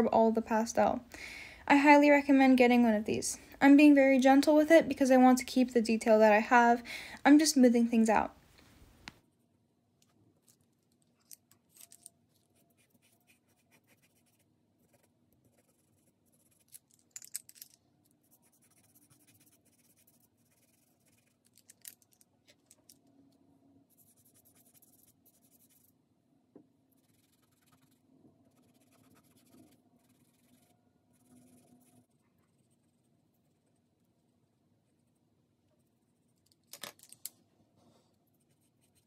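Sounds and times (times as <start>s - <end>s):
faint room hum: 0.0s - 39.0s
pencil scratching on paper: 12.6s - 16.7s, 18.2s - 21.4s, 23.9s - 25.9s, 26.9s - 33.7s, 38.2s - 39.0s.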